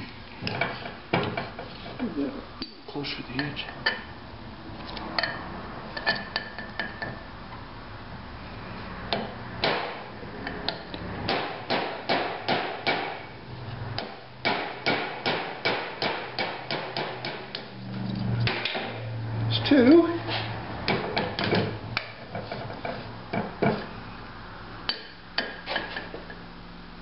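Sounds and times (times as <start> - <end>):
hammer striking metal punch: 10.7 - 13.3, 14.0 - 17.6.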